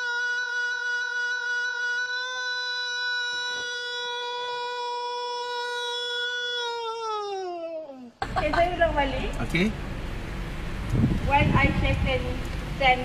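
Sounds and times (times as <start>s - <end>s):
man singing one long note: 0.0s - 6.7s.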